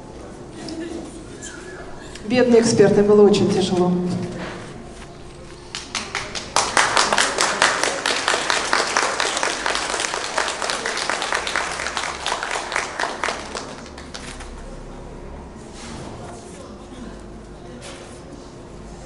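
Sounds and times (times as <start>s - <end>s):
audience applauding: 5.6s - 14.5s.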